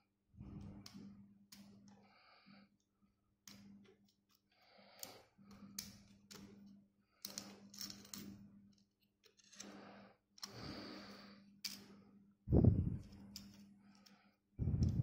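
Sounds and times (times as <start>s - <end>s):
low steady hum: 0.0s - 15.0s
plastic parts clicking and rustling: 7.2s - 9.7s.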